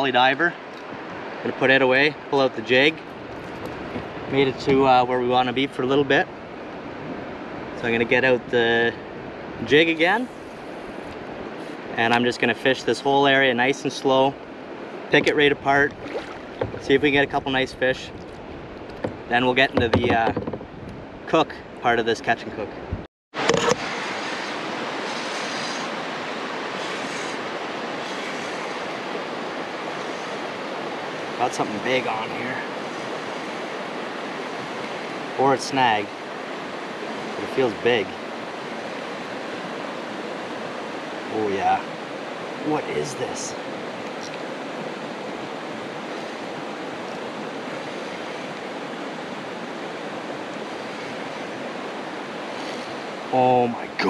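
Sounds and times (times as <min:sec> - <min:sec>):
outdoor background hiss: 0:00.0 - 0:54.0
steady rushing hiss: 0:23.8 - 0:41.0.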